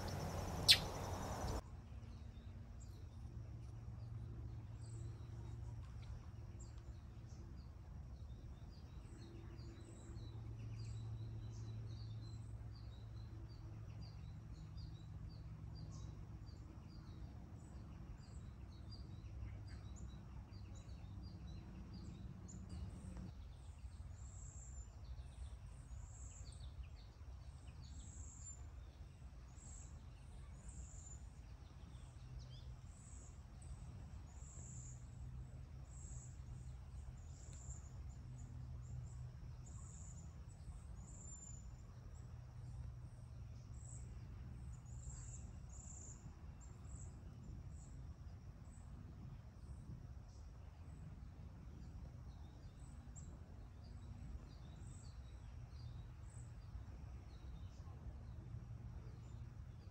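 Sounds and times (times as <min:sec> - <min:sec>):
distant bird chirps: 0:00.0 - 0:01.6
high insect chirps: 0:00.0 - 0:01.6
low hum: 0:00.0 - 0:01.6.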